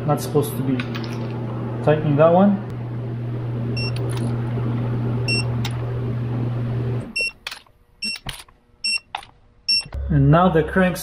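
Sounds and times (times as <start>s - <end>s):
steady low hum: 0.0s - 11.0s
torque wrench beeping: 3.8s - 4.3s, 7.2s - 10.0s.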